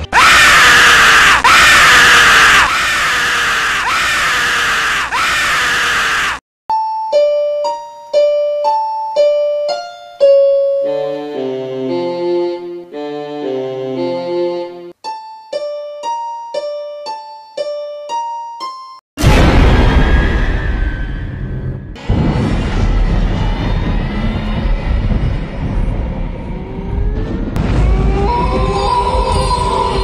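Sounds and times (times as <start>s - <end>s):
background piano music: 6.7s - 19.0s
loud noisy burst: 19.2s - 28.3s.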